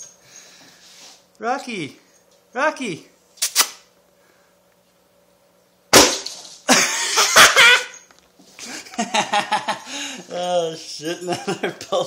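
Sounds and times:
toy air cannon blast: 5.9 - 6.4.

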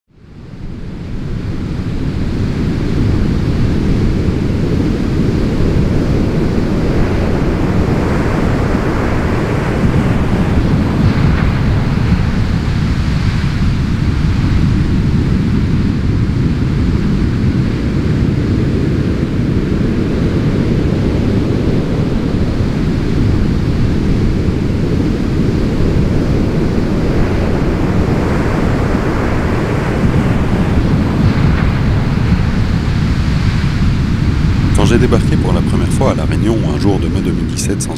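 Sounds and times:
wind: 0.1 - 37.9
ocean waves breaking: 1.0 - 37.9.

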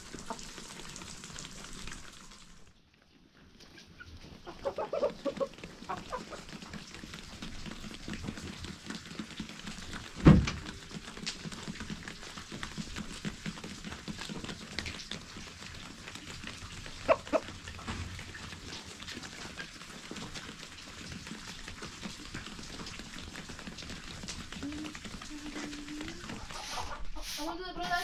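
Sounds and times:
chickens clucking: 3.6 - 10.0, 13.5 - 28.0.

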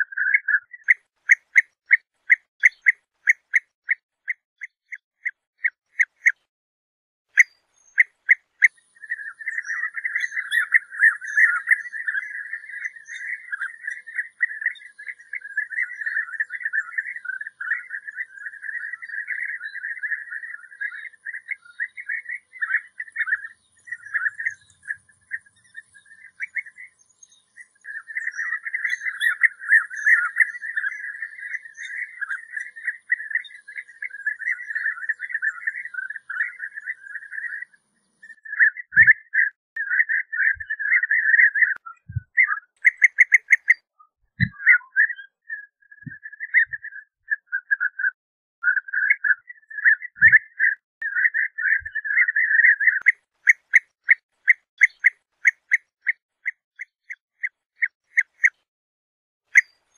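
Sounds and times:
bee-eater bird calling: 42.3 - 43.8.

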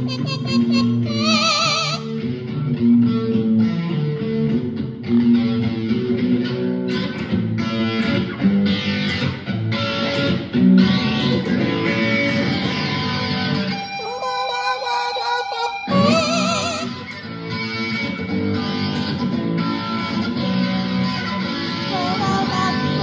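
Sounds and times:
electric guitar rock riff: 0.0 - 23.0.

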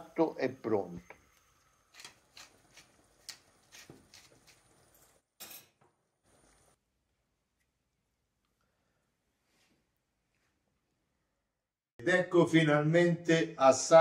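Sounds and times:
cutlery clatter: 5.4 - 5.8.

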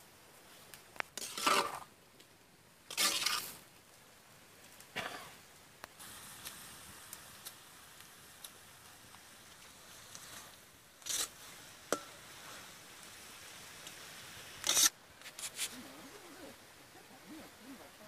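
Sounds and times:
sizzling with small pops: 0.0 - 17.2
metal ladle scraping wok: 1.2 - 1.8, 2.9 - 3.5, 11.0 - 12.6, 14.6 - 15.7.

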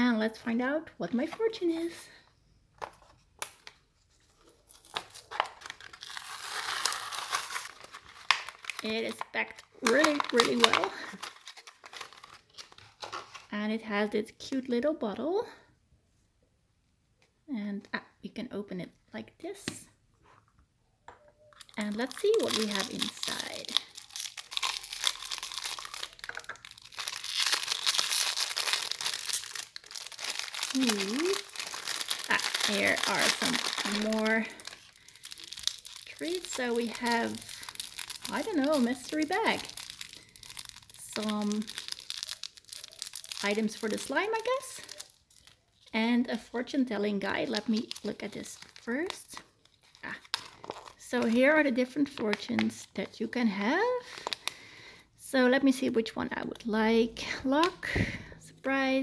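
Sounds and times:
plastic film crinkling: 2.8 - 13.5, 21.5 - 53.1, 54.0 - 54.6
card tearing: 4.7 - 8.8, 22.0 - 36.4.

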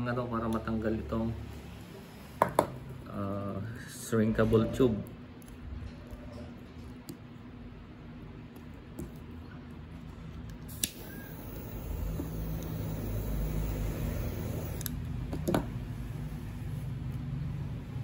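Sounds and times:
lighter clicking: 10.7 - 15.0
gas flame hissing: 10.7 - 16.6.

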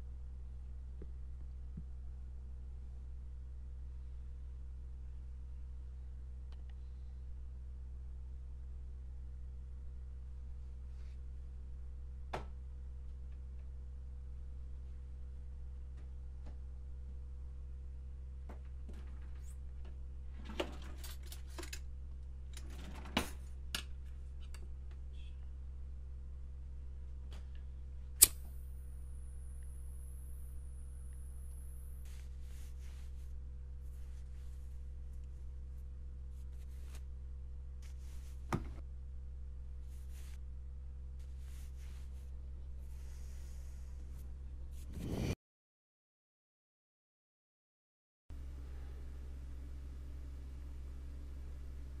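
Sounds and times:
steady low hum: 0.0 - 45.4, 48.4 - 52.0
soft breaths: 41.2 - 45.4.

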